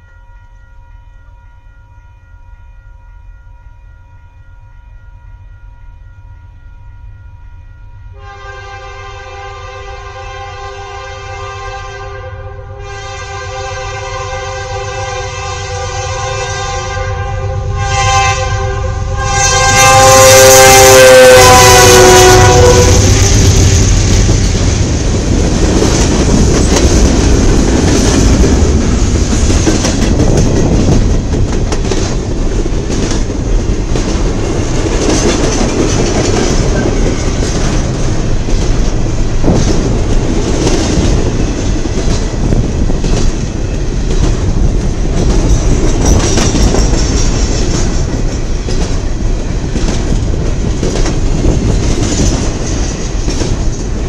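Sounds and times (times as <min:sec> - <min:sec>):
locomotive air horn blast: 0:08.1 - 0:23.6
wheels clacking over rail joints: 0:23.1 - 0:54.0.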